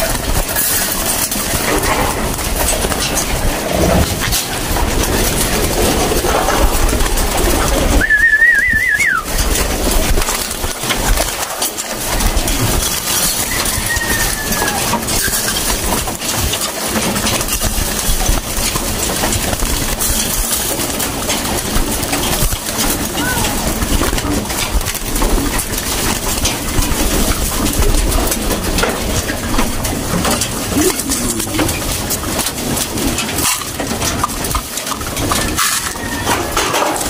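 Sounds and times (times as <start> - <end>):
scuffling and clattering: 0.0 - 37.0
wings flapping: 0.0 - 37.0
warbling whistle: 8.0 - 9.3
pigeons cooing: 27.0 - 33.4.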